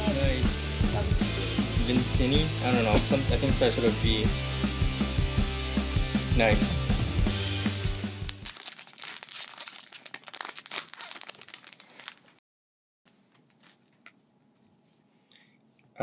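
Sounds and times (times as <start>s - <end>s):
foil wrapper crinkling and tearing: 7.5s - 12.4s, 13.4s - 14.2s.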